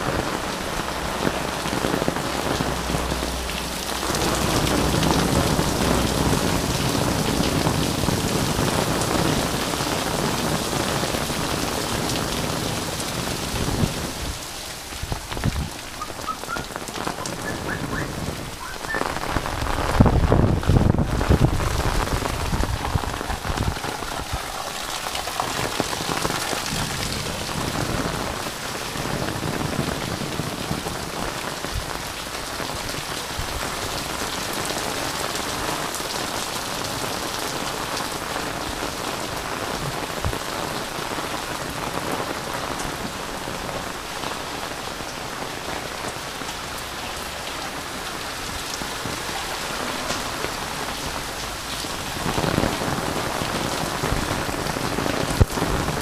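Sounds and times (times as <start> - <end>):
rain drumming on an umbrella: 0.0 - 56.0
rain splashing on wet paving: 0.0 - 56.0.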